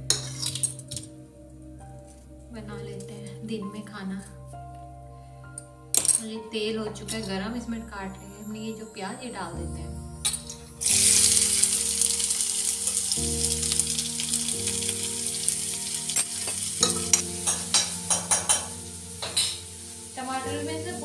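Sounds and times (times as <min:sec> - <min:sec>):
onion sizzling in hot oil: 0:10.8 - 0:21.0
spatula clicking against pan: 0:17.1 - 0:18.7.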